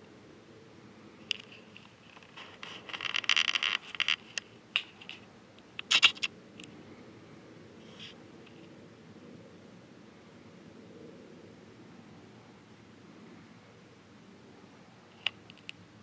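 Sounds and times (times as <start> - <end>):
camera handling clicks and scrapes: 5.8 - 6.3.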